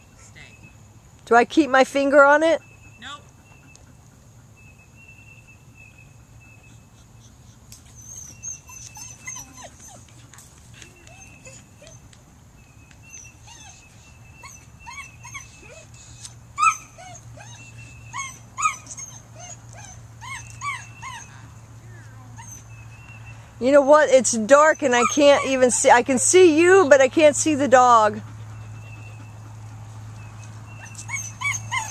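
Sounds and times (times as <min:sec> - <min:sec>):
dog yipping and whining: 0:07.2 - 0:10.1, 0:11.0 - 0:12.0, 0:13.1 - 0:21.4, 0:22.4 - 0:22.7, 0:23.9 - 0:25.7, 0:30.7 - 0:31.9.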